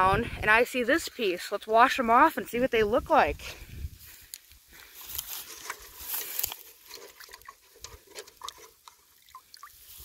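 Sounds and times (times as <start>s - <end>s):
rocks scuffing and clicking: 4.1s - 10.0s.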